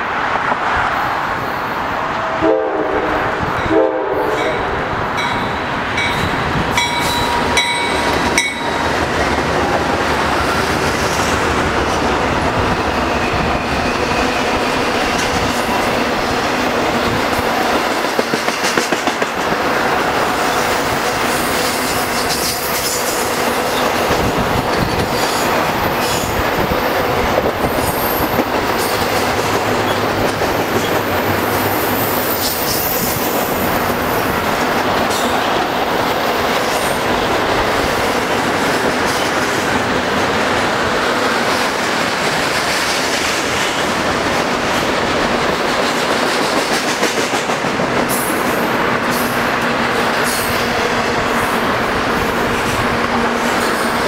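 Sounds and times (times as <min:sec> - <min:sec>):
steel wheels rolling on rail: 0:00.0 - 0:54.0
clacks over rail joints: 0:17.3 - 0:19.6, 0:41.3 - 0:48.3.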